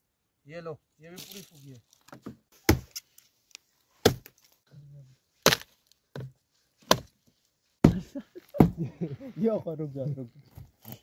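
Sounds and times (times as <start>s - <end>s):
wooden club knocking firewood: 2.1s - 2.9s, 4.0s - 4.3s, 5.4s - 7.2s, 7.8s - 8.8s.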